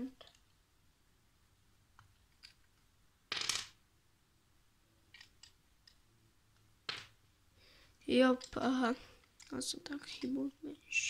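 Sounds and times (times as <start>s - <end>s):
plastic pieces clicking: 5.1s - 6.0s, 8.4s - 10.4s.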